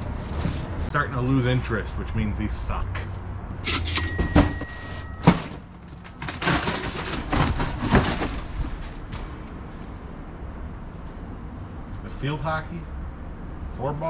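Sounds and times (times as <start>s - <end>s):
short high ringing tone: 3.7s - 5.5s
knocks and thumps: 4.2s - 5.6s
cardboard scraping and ripping: 5.9s - 9.4s.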